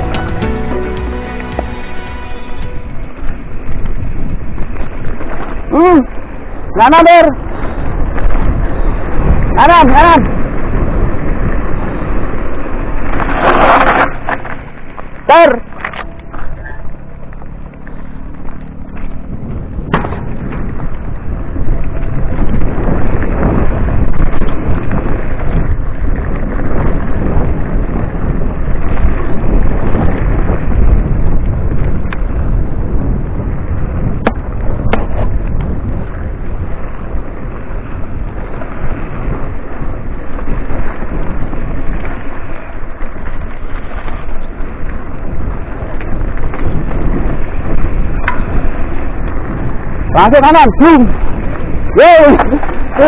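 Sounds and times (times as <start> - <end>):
tyre noise: 0.0 - 53.0
wind rumble on microphone: 0.0 - 53.0
bike rattling over ground: 2.6 - 53.0.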